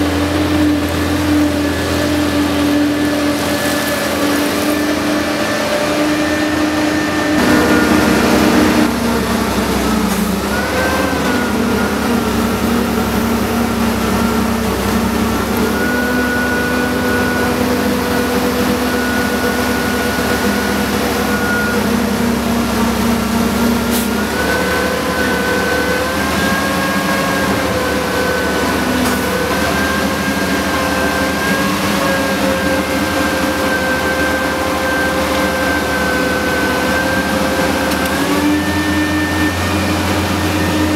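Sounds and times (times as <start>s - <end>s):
heavy machine engine under load: 0.0s - 40.9s
high thin whine: 1.5s - 10.6s
loud rushing: 3.2s - 10.5s.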